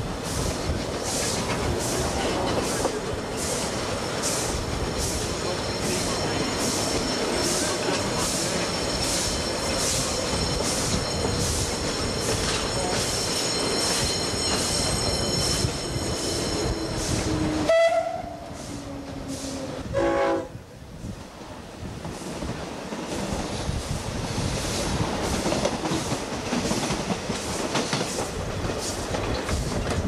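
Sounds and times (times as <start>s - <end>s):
electric train passing: 0.0s - 20.3s
steam locomotive running: 0.0s - 20.3s, 21.8s - 30.0s
train horn blast: 17.0s - 20.6s.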